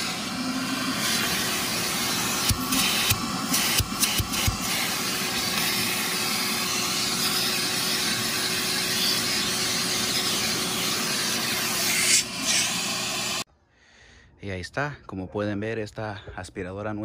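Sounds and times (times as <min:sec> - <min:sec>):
shop vacuum running: 0:00.0 - 0:13.5.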